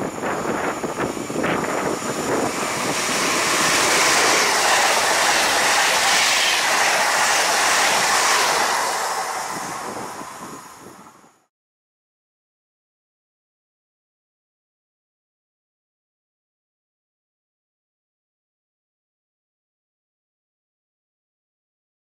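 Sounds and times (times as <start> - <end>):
electric train passing at speed: 0.0 - 11.5.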